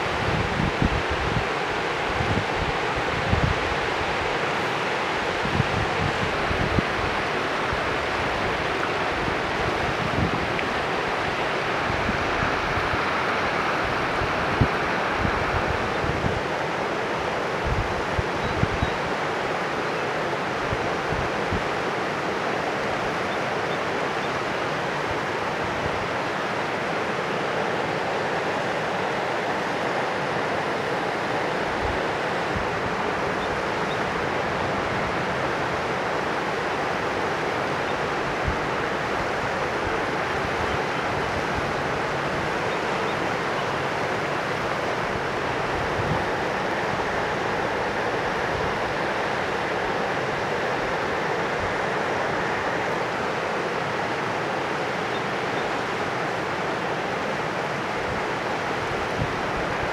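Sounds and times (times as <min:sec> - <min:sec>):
wind bumps on microphone: 0:00.0 - 0:04.3, 0:05.4 - 0:08.5, 0:09.2 - 0:10.8, 0:13.8 - 0:16.5, 0:17.6 - 0:19.0
river rushing: 0:00.0 - 0:59.9.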